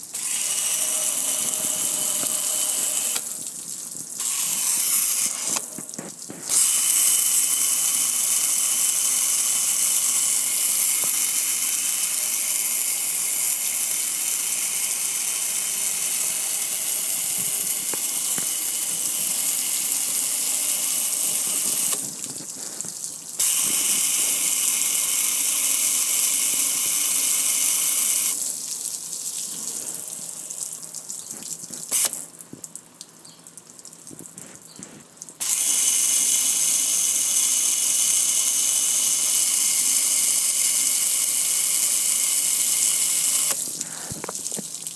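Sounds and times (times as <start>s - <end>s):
water spraying onto grill: 0.0s - 12.9s, 15.9s - 25.0s
water pouring onto concrete: 0.0s - 27.5s, 28.3s - 36.5s, 37.2s - 44.9s.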